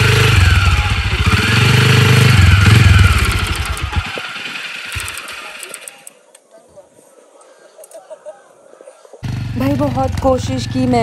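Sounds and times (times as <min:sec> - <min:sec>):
quad bike engine revving: 0:00.0 - 0:06.0, 0:09.2 - 0:11.0.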